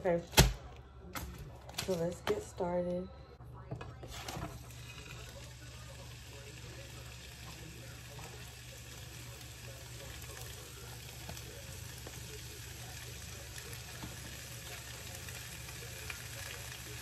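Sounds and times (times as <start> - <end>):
steak sizzling in a frying pan: 4.2 - 17.0.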